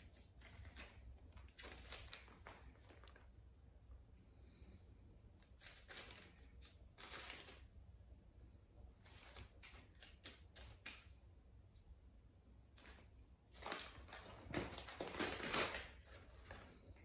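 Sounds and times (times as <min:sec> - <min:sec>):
paper rustling and crinkling: 0:00.0 - 0:03.4, 0:05.4 - 0:07.7, 0:12.8 - 0:17.0.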